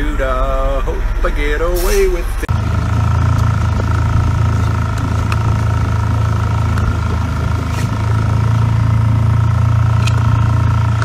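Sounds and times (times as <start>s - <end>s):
motorboat engine drone: 0.0s - 11.0s.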